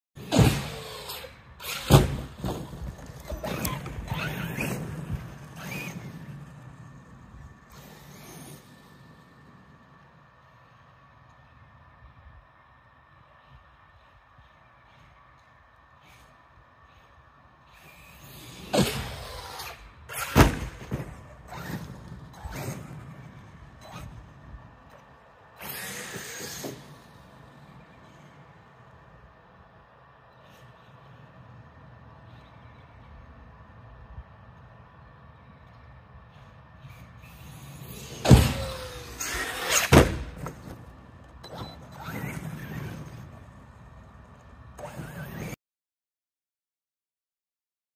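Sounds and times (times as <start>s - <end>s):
toy truck hard impacts: 0.2s - 5.0s, 38.1s - 40.9s
electric motor whining: 0.2s - 11.4s, 16.9s - 29.3s
loud landing impact: 38.2s - 40.8s.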